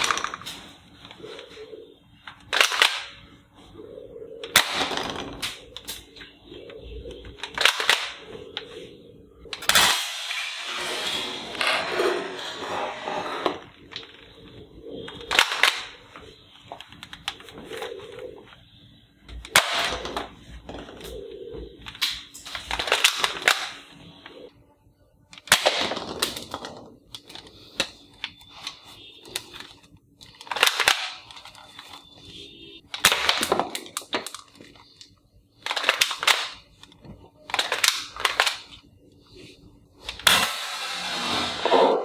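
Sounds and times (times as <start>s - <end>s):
toy gun rattling bursts: 7.4s - 8.2s.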